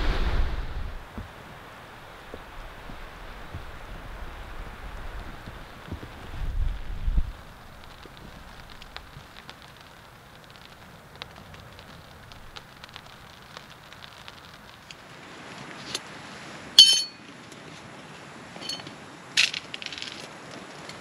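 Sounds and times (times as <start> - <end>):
wood fire crackling: 0.0 - 21.0
metal camp items clinking: 16.8 - 17.3, 18.6 - 20.3.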